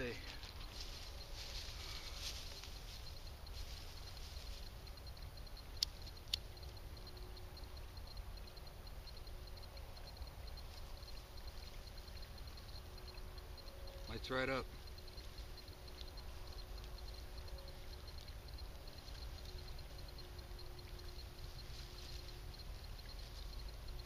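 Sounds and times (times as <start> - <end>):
dry grass rustling: 0.0 - 6.6, 14.7 - 24.0.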